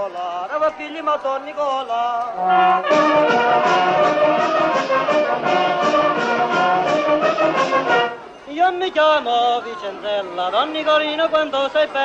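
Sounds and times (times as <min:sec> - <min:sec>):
band with brass playing folk tune: 0:02.4 - 0:08.4.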